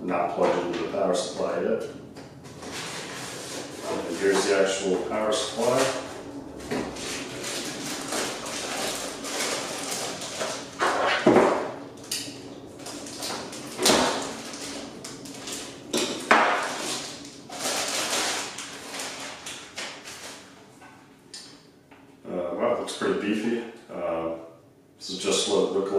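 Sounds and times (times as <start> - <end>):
packaging rustling and crinkling: 2.4 - 11.2, 12.8 - 20.8.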